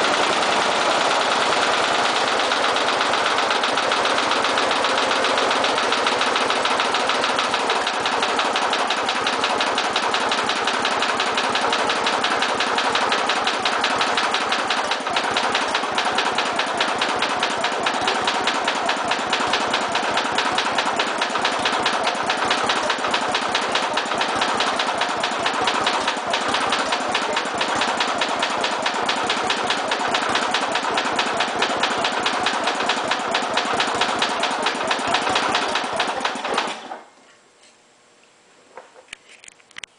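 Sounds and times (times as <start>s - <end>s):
mower engine running: 0.0s - 37.0s.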